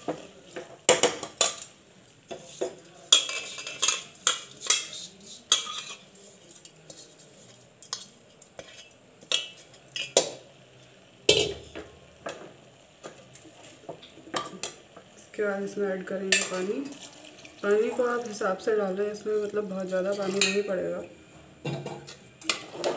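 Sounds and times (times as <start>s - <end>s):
metal ladle scraping a pot: 2.4s - 6.1s, 8.6s - 9.0s.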